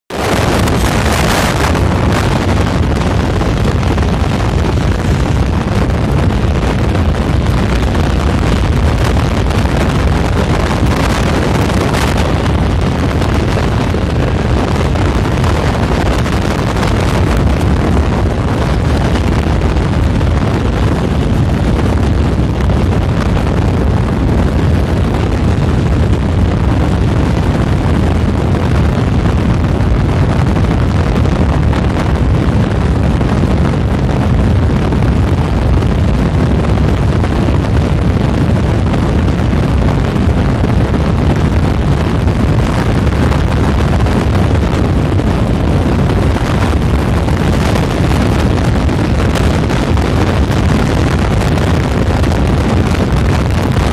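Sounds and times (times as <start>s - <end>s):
car wind and road noise: 0.0s - 53.9s
wind rumbling on microphone: 0.0s - 53.9s.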